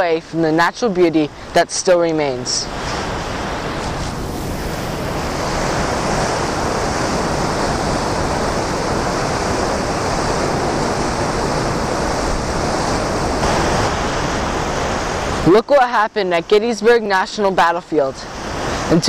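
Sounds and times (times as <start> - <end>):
waterfall rushing: 3.2 - 16.4.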